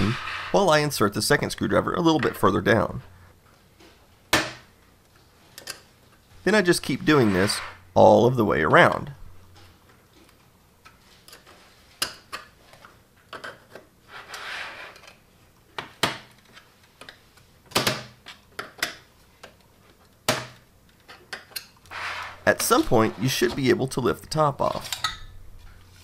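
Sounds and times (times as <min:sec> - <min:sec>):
short scrape: 0:14.1 - 0:15.0, 0:21.9 - 0:23.3.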